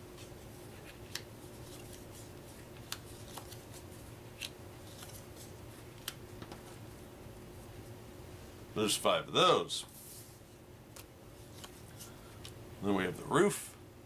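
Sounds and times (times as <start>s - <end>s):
cards sliding and rustling: 0.2s - 6.8s, 9.9s - 12.6s
card edges snapping: 2.8s - 5.2s.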